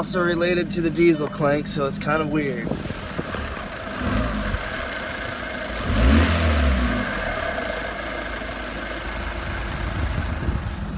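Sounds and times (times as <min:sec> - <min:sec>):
diesel engine idling and revving: 0:00.0 - 0:10.9.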